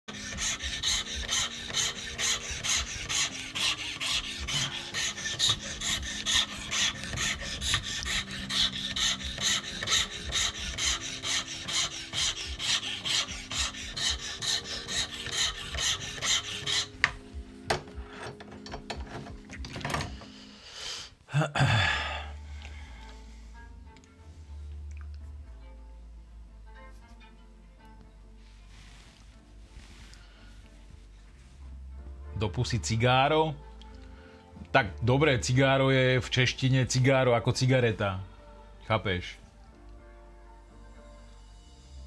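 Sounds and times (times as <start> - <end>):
file rasping on wood: 0.0 - 19.3.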